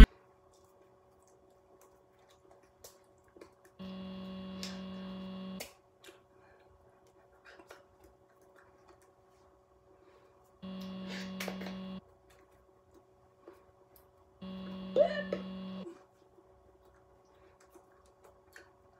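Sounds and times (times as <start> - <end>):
low electrical hum: 0.0 - 18.9
louder hum switching on: 3.8 - 5.6, 10.6 - 12.0, 14.4 - 15.9.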